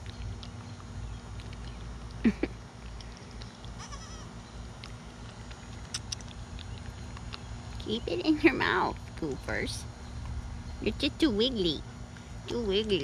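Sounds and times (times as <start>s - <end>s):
goat kid bleat: 3.8s - 4.4s.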